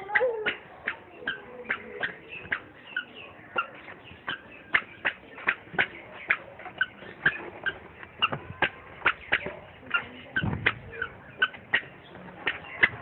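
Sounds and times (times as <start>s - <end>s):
squeaky shoes on concrete: 0.0s - 13.0s.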